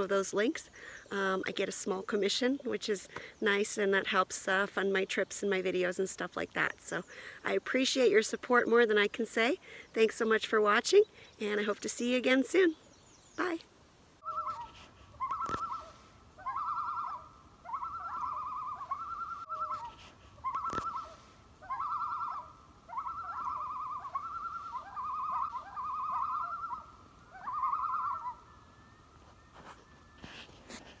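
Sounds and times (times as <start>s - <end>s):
bird trilled cry: 14.2s - 28.7s.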